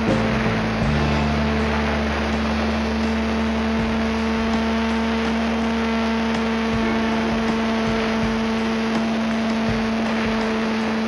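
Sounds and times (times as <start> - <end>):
electric motor and propeller humming: 0.0 - 11.0.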